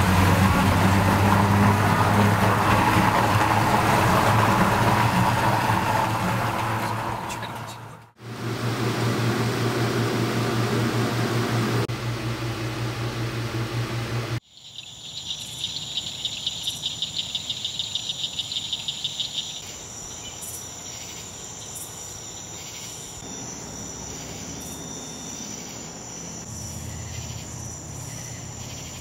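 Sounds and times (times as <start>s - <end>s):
high-pitched cricket trill: 14.4s - 29.0s
rapidly pulsing insect call: 14.4s - 29.0s.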